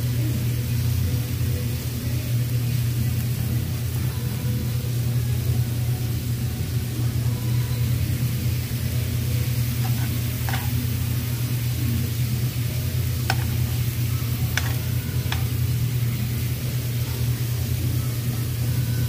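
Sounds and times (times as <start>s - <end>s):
meat sizzling on a grill: 0.0s - 19.0s
steady low hum: 0.0s - 19.0s
metal tongs clicking on grill: 9.8s - 11.0s, 13.2s - 15.7s.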